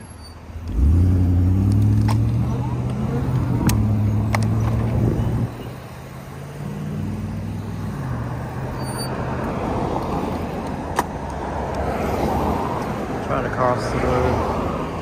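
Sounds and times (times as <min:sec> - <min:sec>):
truck engine humming: 0:00.0 - 0:11.8
tyre noise of passing cars: 0:00.0 - 0:15.0
vehicle engines running: 0:00.0 - 0:15.0.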